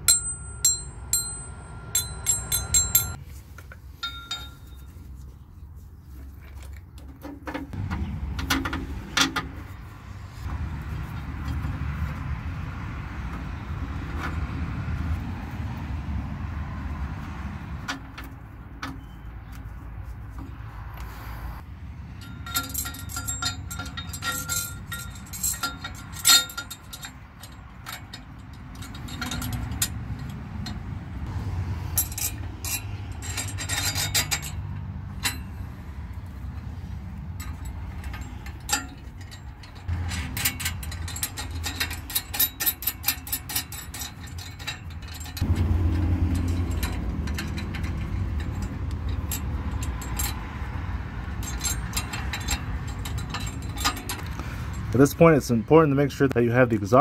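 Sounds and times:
metal parts clinking: 0.0s - 3.2s, 4.0s - 5.1s, 22.2s - 30.8s, 31.9s - 36.6s, 37.2s - 55.3s.

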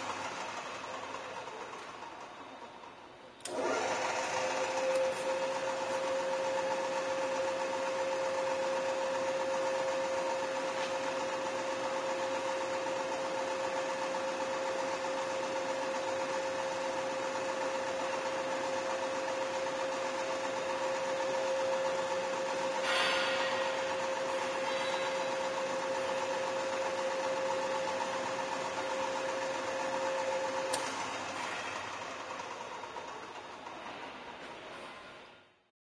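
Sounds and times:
drill press motor whine: 0.0s - 35.6s
drill press switch: 3.4s - 8.4s, 30.1s - 31.4s.

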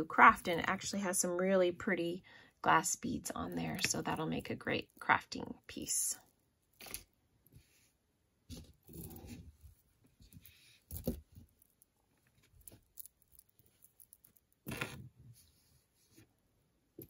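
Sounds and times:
jewelry chain and beads clinking: 10.4s - 15.0s.

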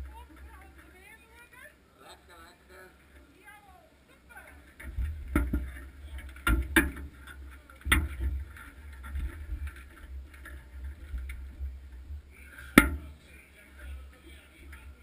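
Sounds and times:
knocks and thumps on a bobsled: 4.6s - 13.2s.

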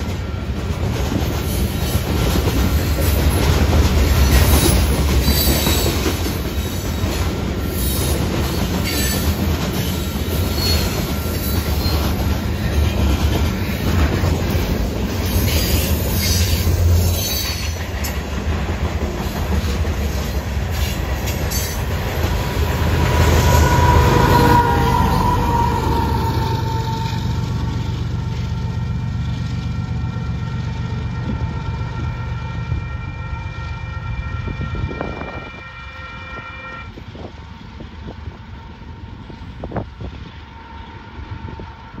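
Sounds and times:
train wheels clacking on rails: 0.0s - 32.1s
diesel locomotive under power: 0.0s - 42.0s
wheel squeal: 4.3s - 6.8s, 8.8s - 12.2s, 15.2s - 17.8s
train horn: 22.6s - 27.7s, 29.9s - 37.4s.

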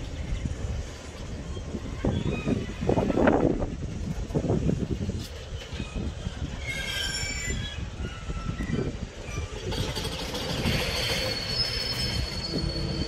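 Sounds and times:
train wheels rumbling on rails: 0.0s - 13.0s
high-pitched wheel squeals: 5.7s - 13.0s.

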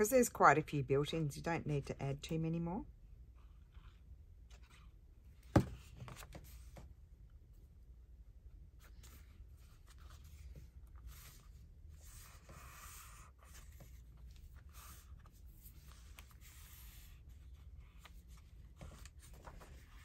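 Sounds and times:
paper rustling and sliding: 8.8s - 20.0s.

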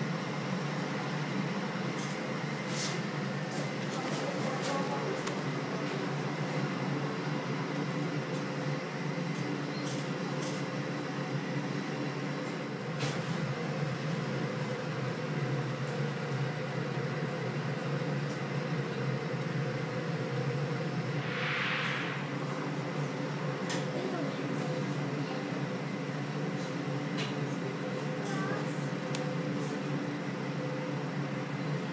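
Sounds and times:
machinery hum: 0.0s - 31.9s
rushing noise: 21.1s - 23.6s.

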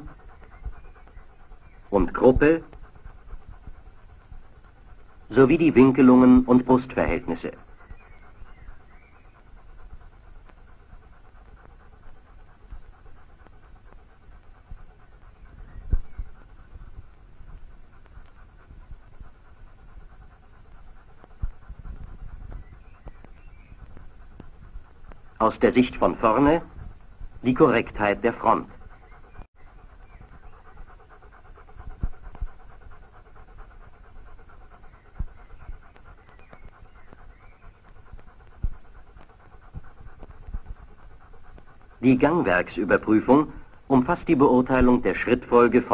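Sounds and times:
dog panting: 0.0s - 45.9s
faint clicks: 7.4s - 25.5s, 30.2s - 42.0s.

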